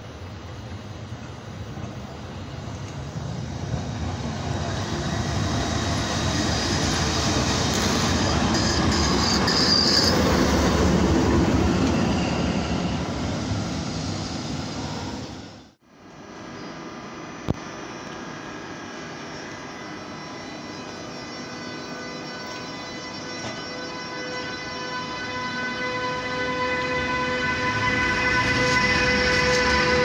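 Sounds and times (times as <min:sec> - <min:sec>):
diesel locomotive passing: 0:00.0 - 0:30.0
high wheel squeal: 0:03.7 - 0:15.4, 0:18.7 - 0:30.0.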